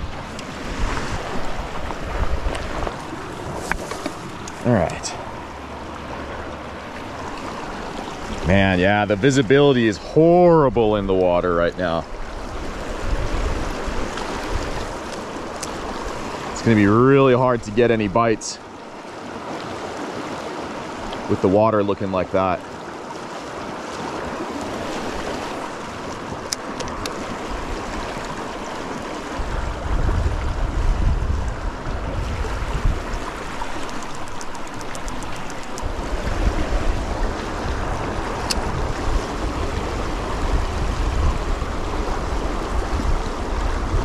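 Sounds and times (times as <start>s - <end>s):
wind buffeting microphone: 0.0s - 5.4s, 12.1s - 17.1s, 26.2s - 44.0s
creek water rushing: 0.0s - 44.0s.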